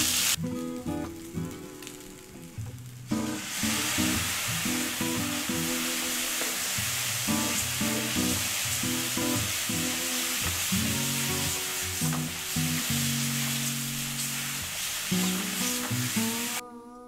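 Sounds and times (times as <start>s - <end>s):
noodles sizzling in a pan: 0.0s - 16.6s
spatula stir-frying: 0.0s - 16.6s
background music with plucked notes: 0.4s - 10.0s.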